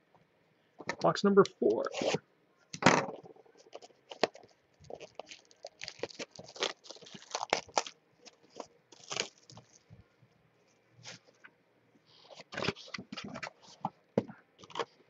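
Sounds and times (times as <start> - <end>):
plastic wrapper crinkling and tearing: 3.6 - 10.0.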